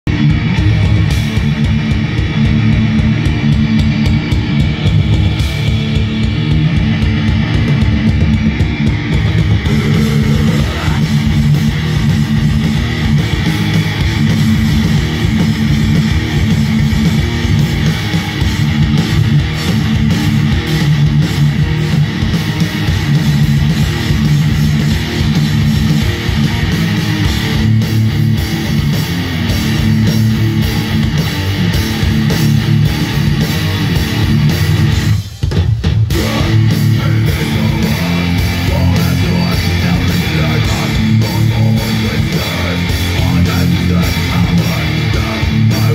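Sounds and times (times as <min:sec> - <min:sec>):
metal band playing live: 0:00.0 - 0:45.9.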